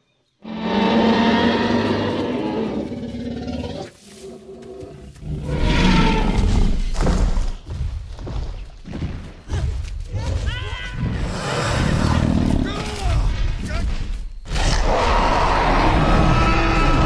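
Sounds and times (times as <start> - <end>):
dinosaur roars: 14.5 - 17.0.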